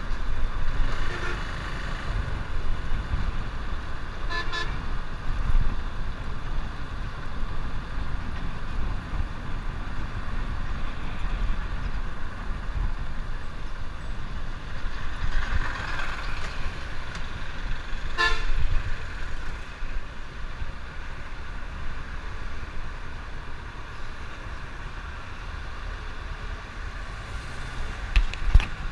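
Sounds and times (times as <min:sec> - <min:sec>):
wind rushing over microphone: 0:00.0 - 0:25.8, 0:26.5 - 0:28.9
road traffic: 0:00.0 - 0:28.9
vehicle horn toot: 0:01.0 - 0:01.5, 0:04.3 - 0:04.8, 0:18.2 - 0:18.6.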